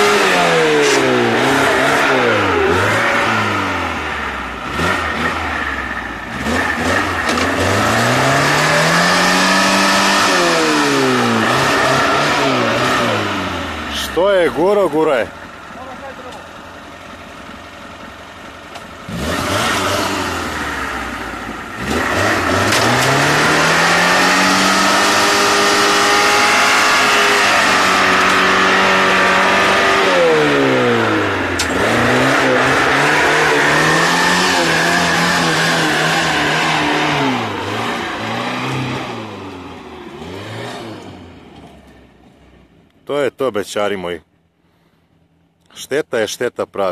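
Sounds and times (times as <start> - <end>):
engine revving hard: 0.0 - 15.2, 19.1 - 41.4
vehicle churning through mud: 0.0 - 15.2, 19.1 - 41.3.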